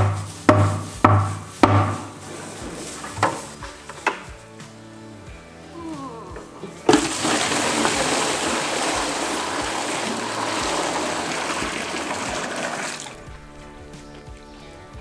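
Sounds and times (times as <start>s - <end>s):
water pouring from a pail: 6.9s - 13.3s.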